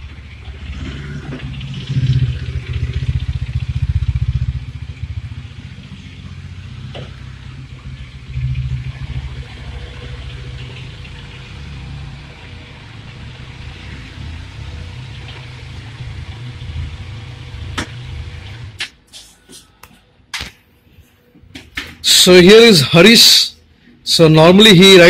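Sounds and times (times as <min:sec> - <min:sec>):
motorcycle engine running: 0:00.0 - 0:18.8.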